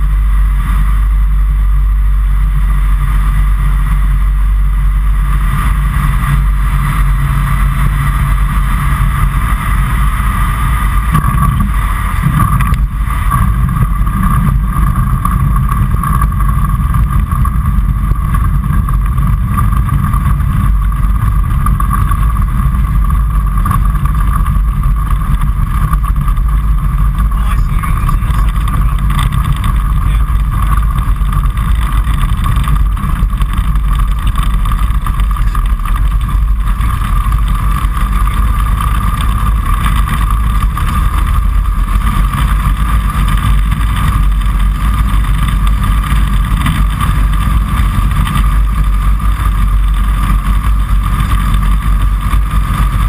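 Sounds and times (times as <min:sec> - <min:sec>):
light aircraft engine and propeller: 0:00.0 - 0:53.0.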